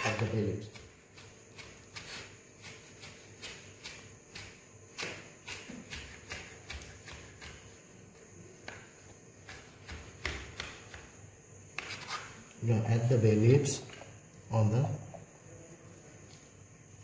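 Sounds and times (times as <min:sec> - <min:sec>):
knife chopping on cutting board: 0:00.0 - 0:07.6, 0:09.4 - 0:11.1.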